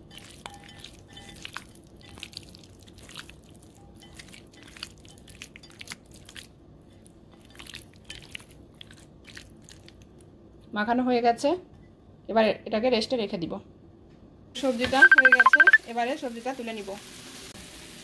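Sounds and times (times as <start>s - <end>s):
hands kneading wet chicken: 0.0s - 10.3s.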